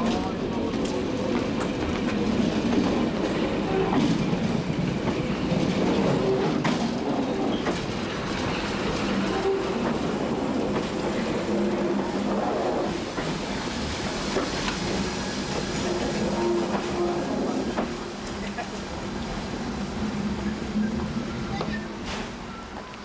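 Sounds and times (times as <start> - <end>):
electric railcar rolling past: 0.0 - 23.0.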